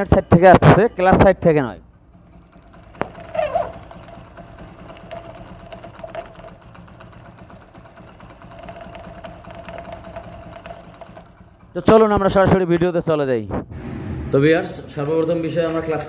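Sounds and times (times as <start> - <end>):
engine clicking and rattling: 0.0 - 13.2, 14.9 - 16.0
motorcycle engine idling: 0.8 - 13.2.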